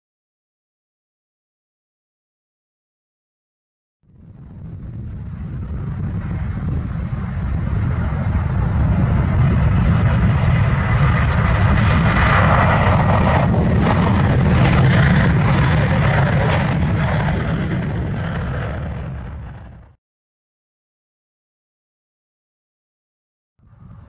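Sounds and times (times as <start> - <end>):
jet engines rumbling: 4.0 - 20.0, 23.6 - 24.0.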